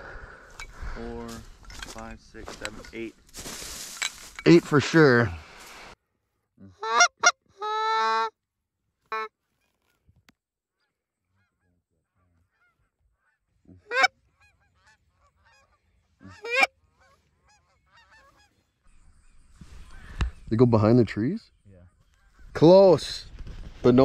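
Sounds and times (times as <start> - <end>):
faint honking of flock overhead: 6.6 - 8.3, 10.7 - 20.5
goose honking close: 6.7 - 8.3, 11.3 - 18.7.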